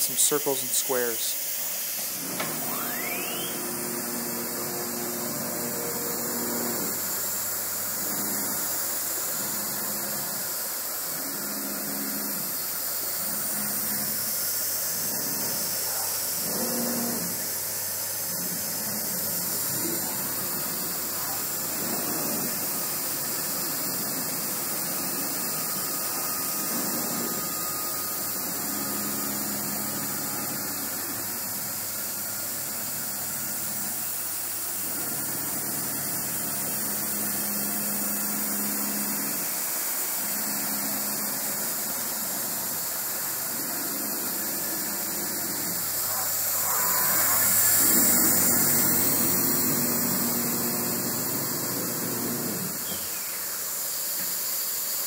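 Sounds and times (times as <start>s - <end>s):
spindle hiss: 0.0s - 3.7s, 42.2s - 55.0s
router axis motors humming: 0.0s - 55.0s.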